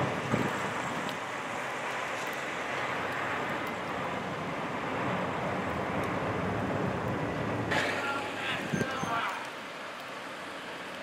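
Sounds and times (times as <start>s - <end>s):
truck engine and road noise: 0.0s - 11.0s.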